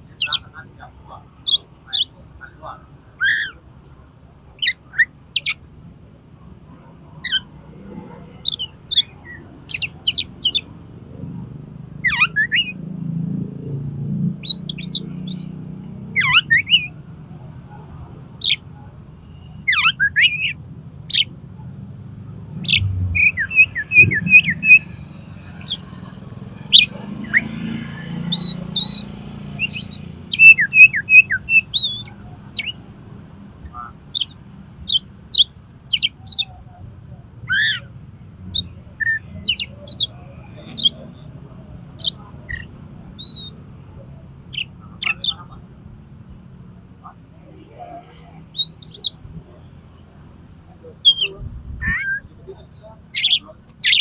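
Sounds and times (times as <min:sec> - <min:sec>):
bird singing whistles and chirps: 0:22.6 - 0:25.0, 0:28.2 - 0:32.8, 0:53.1 - 0:54.0.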